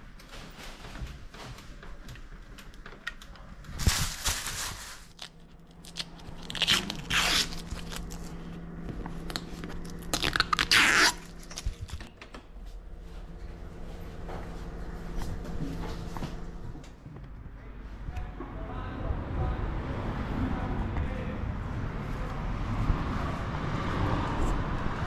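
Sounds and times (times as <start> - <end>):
plastic film peeling and tearing: 3.7 - 8.4, 9.2 - 12.0.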